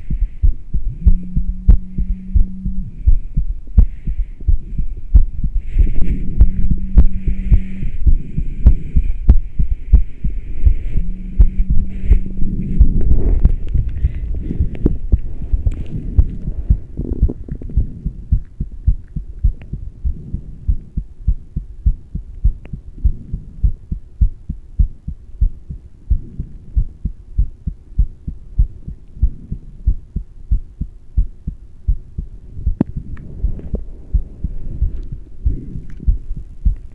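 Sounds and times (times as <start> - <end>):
heartbeat thuds: 0.0 - 36.9.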